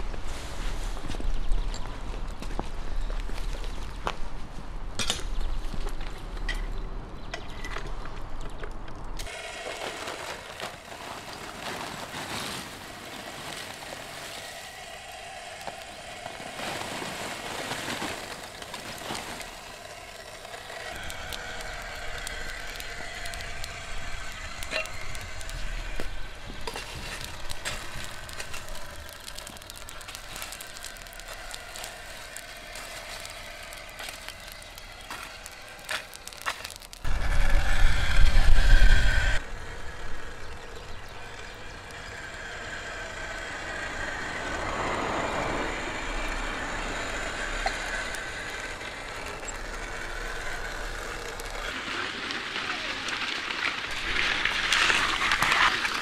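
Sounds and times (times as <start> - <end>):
rotisserie motor whining: 9.2 - 56.0
charcoal being shovelled: 9.3 - 37.1, 50.3 - 56.0.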